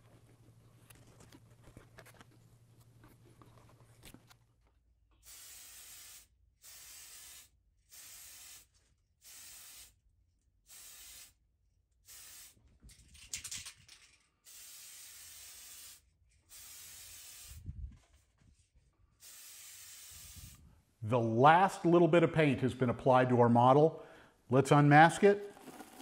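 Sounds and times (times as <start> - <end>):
aerosol spray can hissing: 5.2 - 10.0, 10.7 - 11.4, 12.0 - 12.6, 14.5 - 17.6, 19.2 - 20.6.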